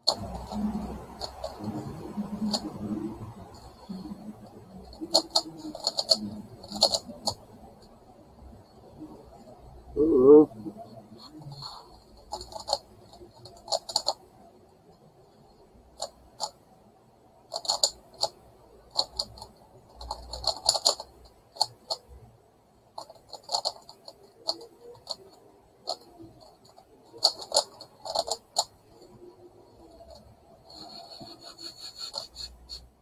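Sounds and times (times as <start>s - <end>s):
plastic puzzle clicking and rattling: 4.8s - 7.4s, 11.5s - 14.2s, 17.5s - 22.1s, 22.9s - 29.2s.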